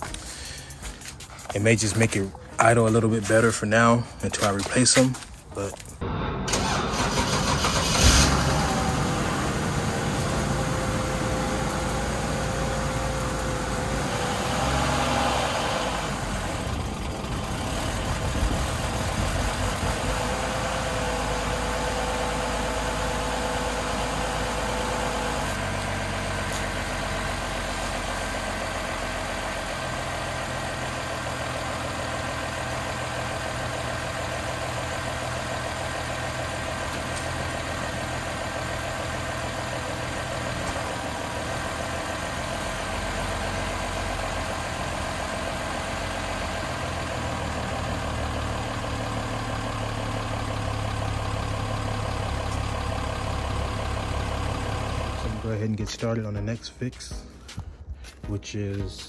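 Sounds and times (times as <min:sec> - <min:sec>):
car engine idling: 0:05.6 - 0:56.1.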